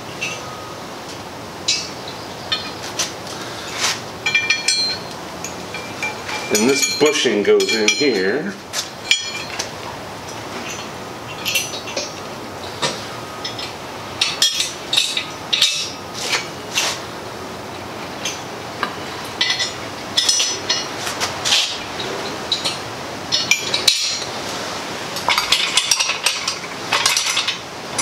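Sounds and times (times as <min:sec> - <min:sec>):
steel parts clinking: 0:03.7 - 0:08.4, 0:09.0 - 0:09.7, 0:12.8 - 0:16.5, 0:18.2 - 0:24.3, 0:25.2 - 0:28.0.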